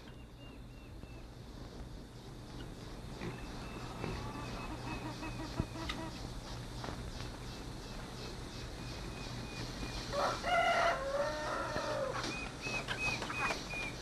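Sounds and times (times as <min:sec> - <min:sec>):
rooster crowing: 0:10.1 - 0:12.3.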